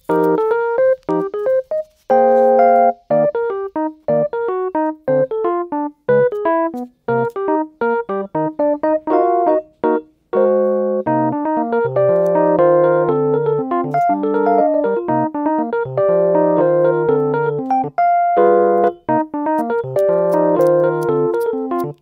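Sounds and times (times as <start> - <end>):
gentle keyboard music: 0.0 - 22.0.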